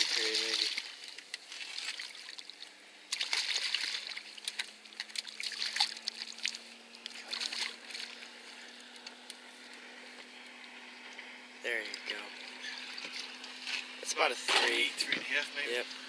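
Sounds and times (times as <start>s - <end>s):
fish thrashing and splashing: 0.0s - 9.0s.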